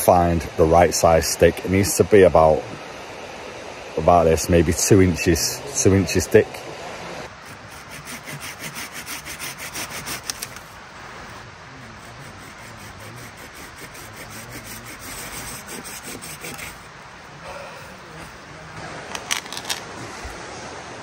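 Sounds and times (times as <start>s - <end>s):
hand saw cutting branch: 7.3s - 10.7s, 11.8s - 16.9s.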